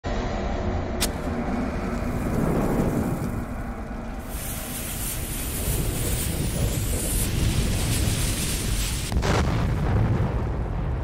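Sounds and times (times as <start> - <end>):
low rumble: 0.0 - 11.0
fuse hissing: 4.0 - 9.1.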